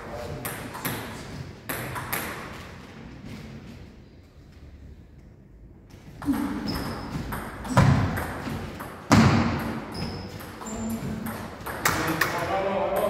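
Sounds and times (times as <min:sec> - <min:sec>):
ping pong ball bouncing on table: 0:06.3 - 0:13.0.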